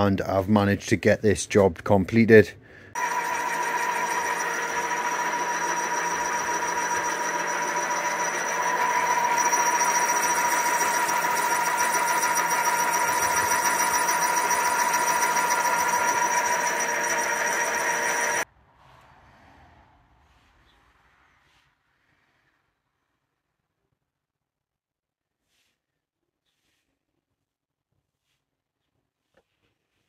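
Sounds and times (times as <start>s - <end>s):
milling machine spindle whine: 3.0s - 18.4s.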